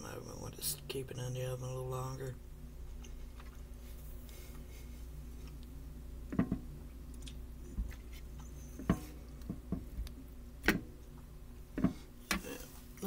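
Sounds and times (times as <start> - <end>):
low steady hum: 0.0 - 13.0
chewing: 7.1 - 8.7.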